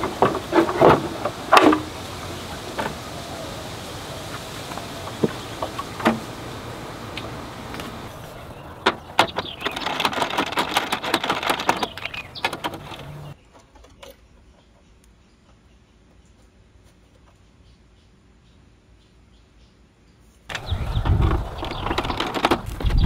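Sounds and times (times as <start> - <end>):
steady hiss: 0.0 - 8.4
clicking of plastic panels: 8.8 - 14.2.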